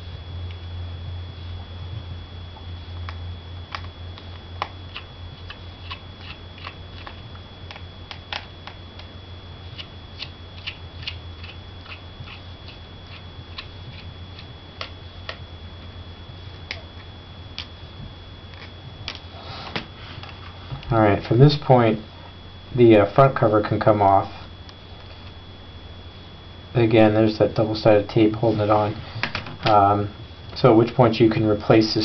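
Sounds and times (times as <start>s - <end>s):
low hum with high whine: 0.0s - 32.0s.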